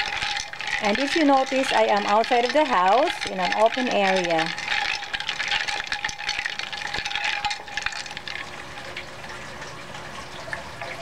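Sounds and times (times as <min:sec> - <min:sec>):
spoon scraping against glass: 0:00.0 - 0:08.2.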